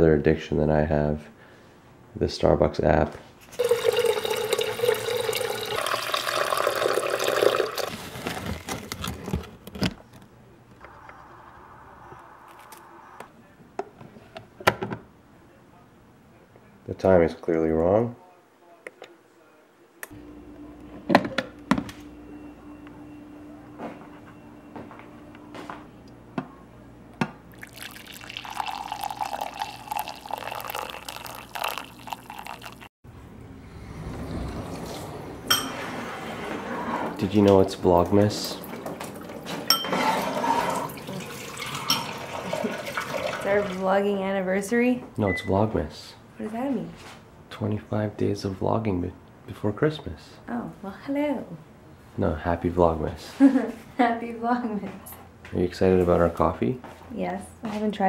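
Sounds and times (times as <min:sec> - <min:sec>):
tap water running into carafe: 0:03.6 - 0:08.0, 0:27.5 - 0:32.9, 0:40.2 - 0:43.8
coffee pouring into a cup: 0:03.6 - 0:08.4, 0:27.5 - 0:32.9, 0:37.2 - 0:43.8.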